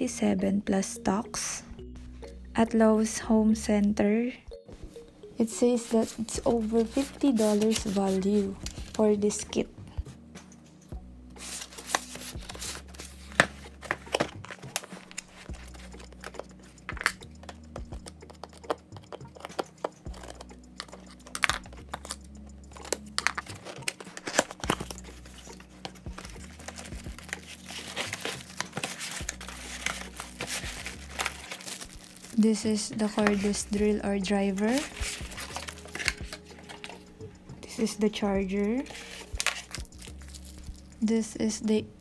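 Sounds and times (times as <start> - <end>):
packaging rustling and tearing: 5.9 - 9.0, 11.4 - 37.1, 38.8 - 40.9
scissors snipping tape and cardboard: 11.7 - 22.2, 22.8 - 31.8, 34.6 - 37.0.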